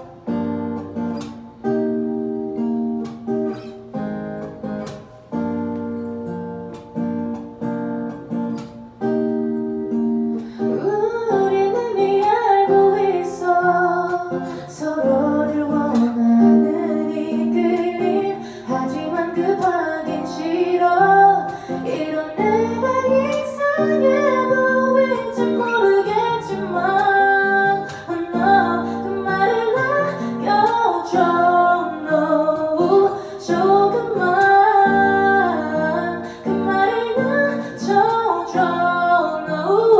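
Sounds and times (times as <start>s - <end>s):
acoustic guitar: 0.0s - 39.9s
woman singing a ballad: 9.9s - 39.9s.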